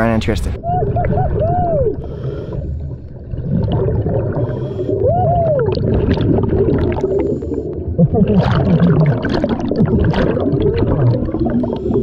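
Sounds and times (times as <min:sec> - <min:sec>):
underwater bubbling: 0:00.0 - 0:12.0
diver breathing through regulator: 0:02.0 - 0:03.2, 0:04.3 - 0:05.0, 0:07.0 - 0:07.9, 0:11.4 - 0:12.0.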